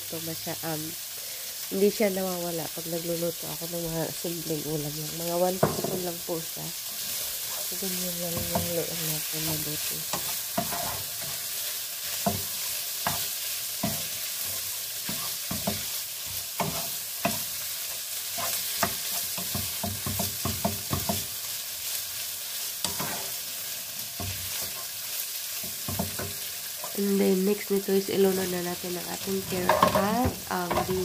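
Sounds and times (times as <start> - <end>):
chicken sizzling in a frying pan: 0.0 - 31.0
spatula scraping against pan: 10.0 - 21.3, 22.7 - 25.0, 29.2 - 31.0.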